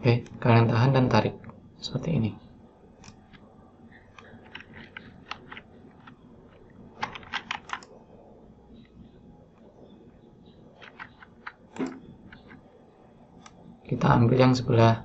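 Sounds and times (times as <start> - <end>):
mouse clicks: 3.0 - 6.2, 10.8 - 12.6
keyboard keystrokes: 4.1 - 7.9, 10.8 - 12.6.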